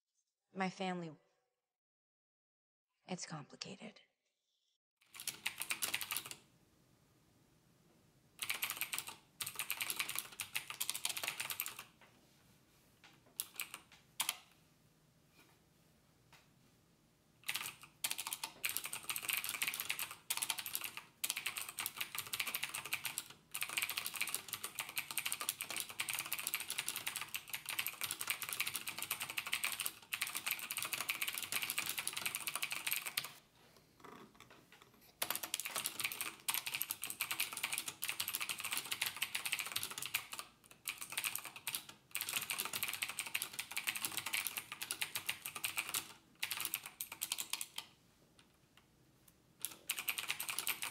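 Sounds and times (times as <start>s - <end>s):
typing on computer keyboard: 5.0s - 6.4s, 8.4s - 12.0s, 13.3s - 14.5s, 17.4s - 33.4s, 35.2s - 47.9s, 49.6s - 50.9s.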